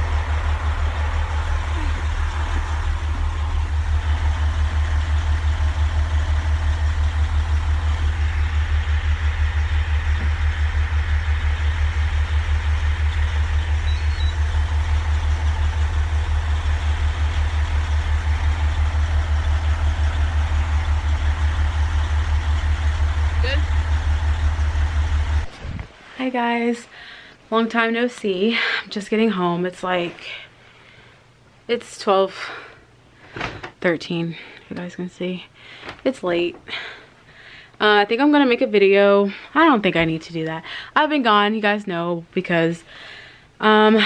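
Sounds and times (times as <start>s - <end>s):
diesel truck engine rumbling: 0.0s - 25.6s.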